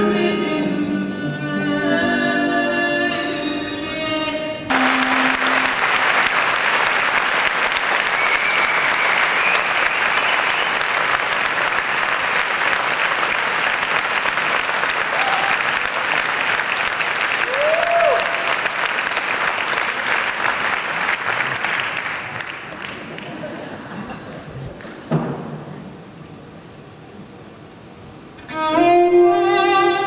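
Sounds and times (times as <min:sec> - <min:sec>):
live music final chord: 0:04.7 - 0:07.5
audience cheering: 0:04.7 - 0:23.4
audience applause: 0:04.7 - 0:24.1.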